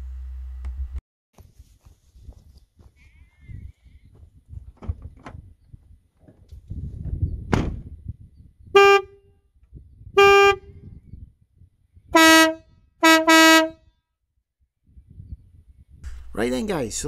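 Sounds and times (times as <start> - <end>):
van door shutting: 7.4 - 7.9
air horn blasts: 8.7 - 9.3, 10.1 - 10.8, 12.1 - 13.8.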